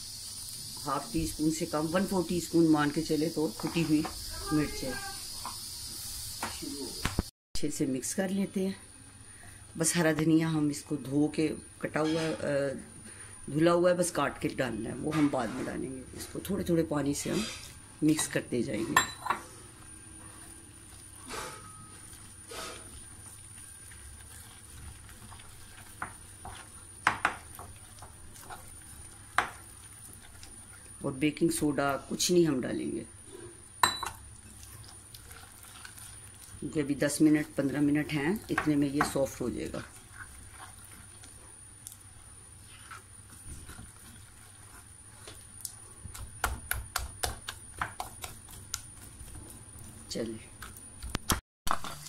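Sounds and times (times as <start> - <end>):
stirring batter in a bowl: 15.2 - 33.1, 34.1 - 51.2.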